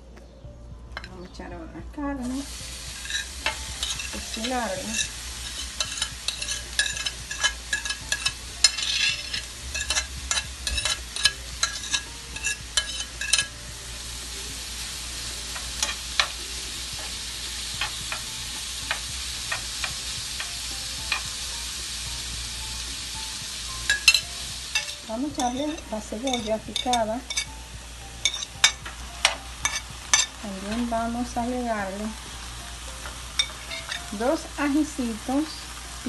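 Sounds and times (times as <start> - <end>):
meat sizzling in a frying pan: 2.2 - 36.0
spoon scraping meat off a plate: 3.0 - 13.6
spoon tapping plate and pan: 3.0 - 13.6, 15.4 - 21.5, 23.8 - 30.9, 33.0 - 34.4.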